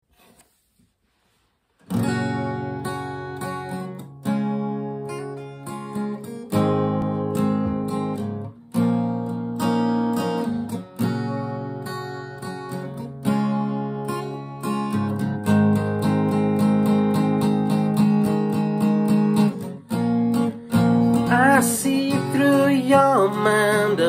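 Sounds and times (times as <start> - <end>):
faint handling sounds: 0.0 - 1.9
acoustic guitar chords: 1.8 - 24.0.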